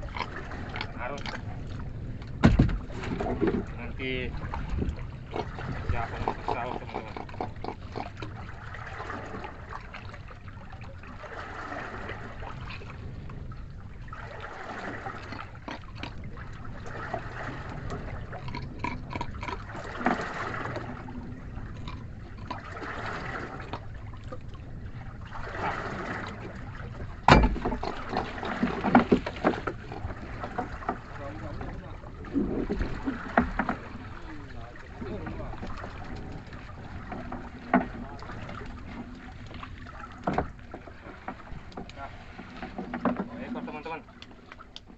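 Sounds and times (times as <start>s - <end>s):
knocks against a wooden boat: 2.2s - 3.8s, 19.2s - 20.8s, 27.0s - 31.8s, 32.6s - 34.0s, 35.6s - 43.6s.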